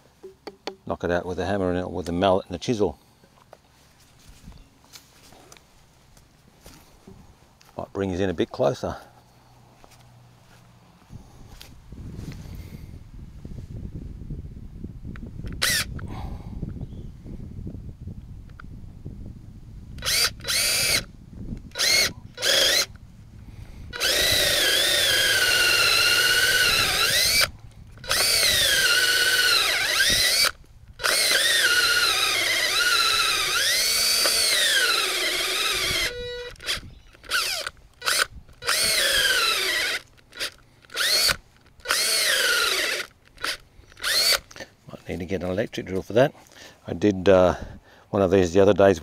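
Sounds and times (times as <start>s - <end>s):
cordless drill boring into wood: 15.5s - 16.1s, 20.0s - 23.0s, 23.9s - 44.6s.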